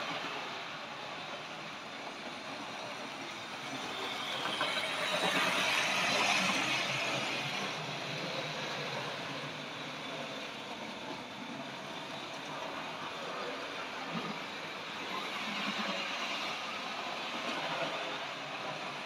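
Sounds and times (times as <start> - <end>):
model train rolling on track: 0.0 - 19.0.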